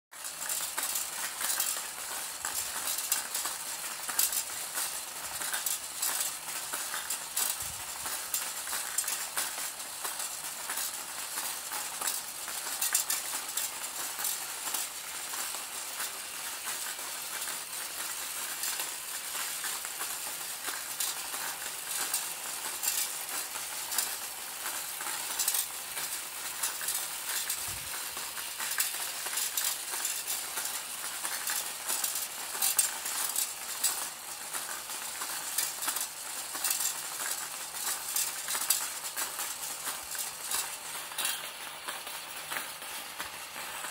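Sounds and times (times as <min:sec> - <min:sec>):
balls clattering on metal tracks: 0:00.2 - 0:43.9.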